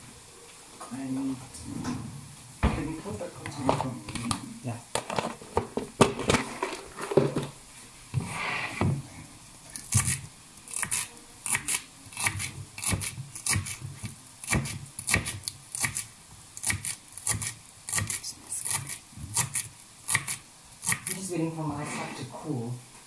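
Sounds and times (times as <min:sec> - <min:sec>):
knife chopping on plastic board: 0:12.2 - 0:16.0.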